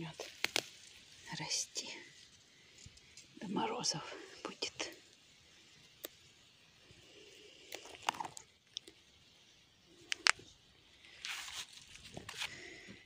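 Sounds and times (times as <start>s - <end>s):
leafy plants rustling: 0.0s - 12.8s
parsley stems snapping: 0.2s - 0.9s, 10.1s - 10.4s.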